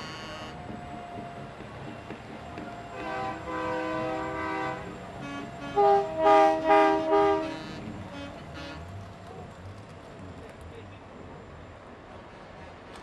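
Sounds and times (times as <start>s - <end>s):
truck air horn blasts: 3.0s - 8.8s.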